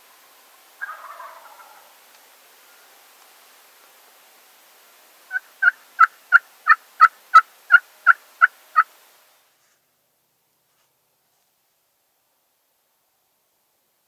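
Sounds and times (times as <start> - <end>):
turkey call yelps: 0.8 - 1.9.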